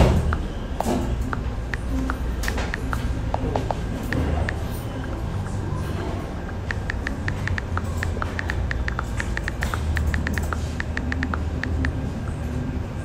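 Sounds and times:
steady low hum: 0.0s - 13.0s
phone keyboard clicking: 1.2s - 4.6s, 6.5s - 12.0s.

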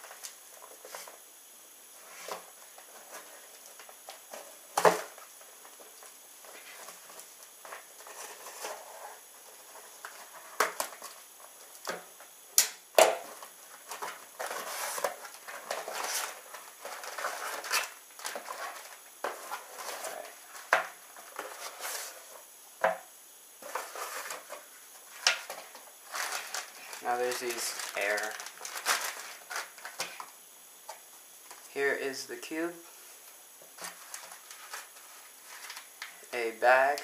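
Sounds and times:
plastic packing crinkling: 13.2s - 22.2s, 23.6s - 30.3s, 33.8s - 36.2s.

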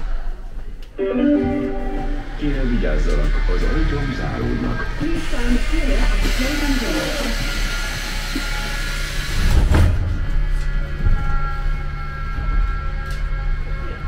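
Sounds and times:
underground train rumbling: 0.0s - 14.0s
faint high tones: 1.0s - 2.6s.

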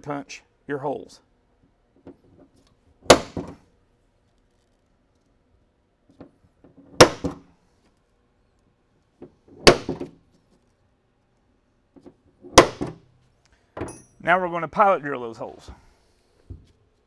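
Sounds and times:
center punch snapping into metal: 3.1s - 3.6s, 7.0s - 7.4s, 9.6s - 10.1s, 12.5s - 13.0s.

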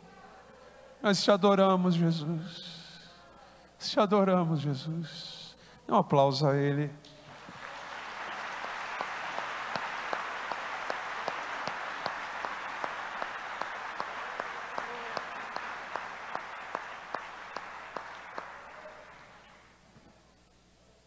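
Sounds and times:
close steady hand claps: 7.1s - 19.6s
crowd applauding: 7.2s - 19.7s.

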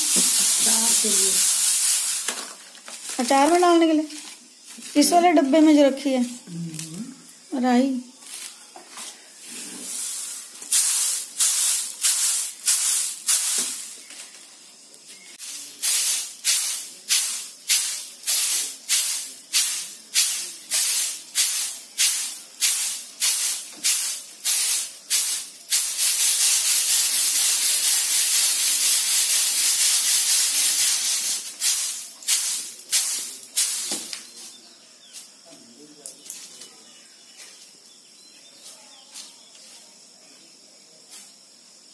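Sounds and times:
seeds rattling on winnowing tray: 0.0s - 6.4s, 8.2s - 34.6s.

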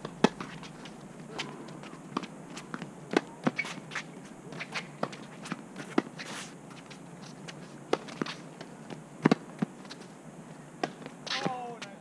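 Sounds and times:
tennis ball bouncing: 4.6s - 10.0s, 10.8s - 11.6s
rackets hitting tennis ball: 10.8s - 12.0s.

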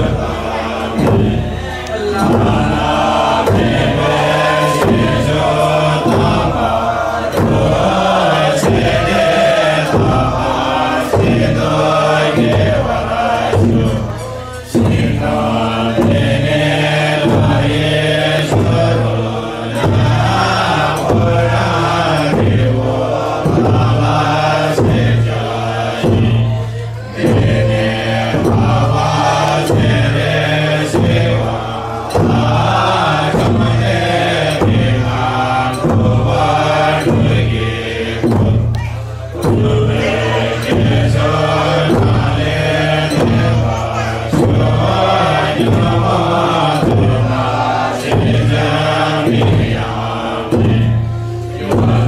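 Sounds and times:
low voices chanting in unison: 0.0s - 52.0s
struck percussion beats: 0.0s - 52.0s.

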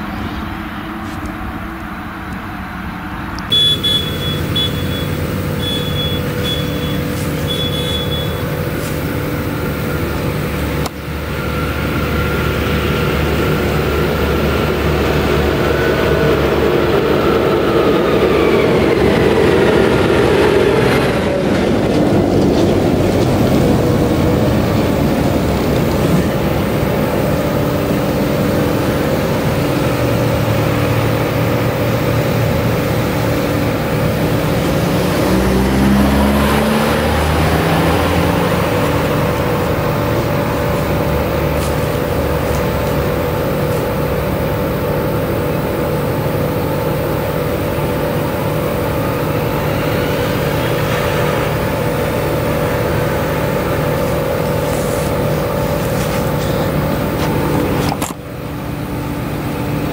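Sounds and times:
tractor diesel engine under load: 0.0s - 59.9s
short high beeps: 3.5s - 8.5s.

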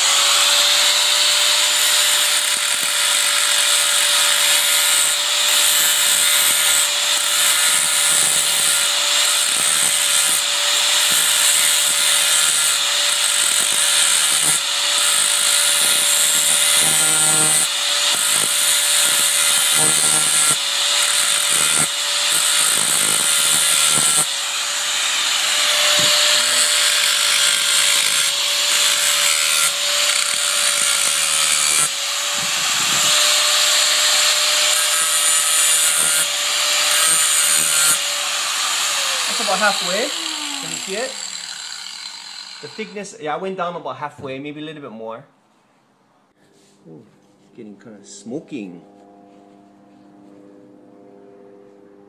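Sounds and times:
angle grinder grinding metal: 0.0s - 43.2s.

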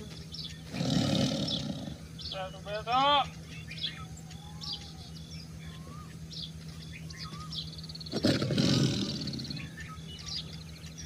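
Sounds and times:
birds chirping: 0.0s - 11.0s
tiger roar: 0.7s - 2.1s, 8.0s - 9.8s.

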